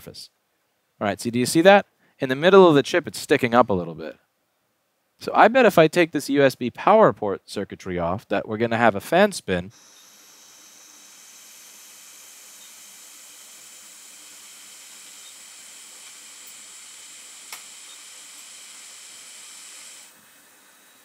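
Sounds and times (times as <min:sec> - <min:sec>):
hot air tool hissing: 0:09.7 - 0:21.0.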